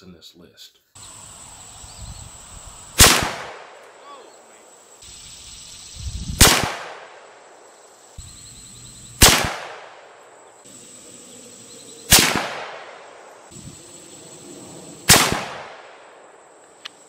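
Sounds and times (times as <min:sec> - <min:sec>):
rifle shots with echo: 0:03.0 - 0:03.8, 0:06.4 - 0:07.2, 0:09.2 - 0:10.2, 0:12.1 - 0:13.3, 0:15.0 - 0:16.3.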